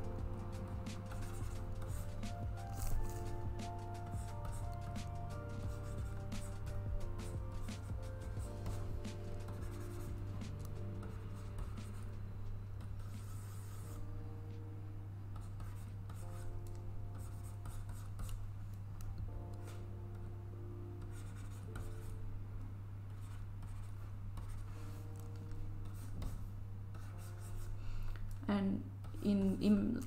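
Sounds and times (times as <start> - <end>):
steady low hum: 0.0 - 30.0
stylus scratching on drawing surface: 0.6 - 14.1, 15.4 - 16.5, 17.1 - 18.4, 21.1 - 22.2, 23.2 - 27.8.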